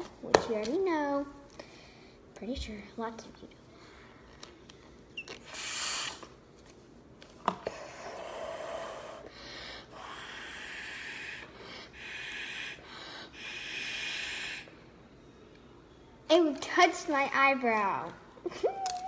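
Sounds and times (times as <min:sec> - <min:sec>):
hissing puffs through a straw: 0:05.4 - 0:06.3, 0:10.0 - 0:14.7.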